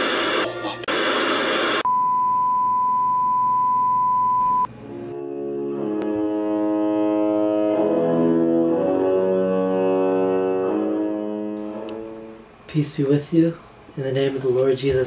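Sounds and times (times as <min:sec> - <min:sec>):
static hiss: 0:00.0 - 0:01.8, 0:11.6 - 0:14.4.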